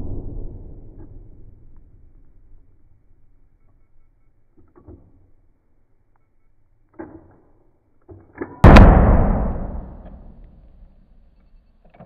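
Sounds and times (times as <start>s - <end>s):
rifle shot echoing: 0.0s - 1.8s, 8.6s - 10.4s.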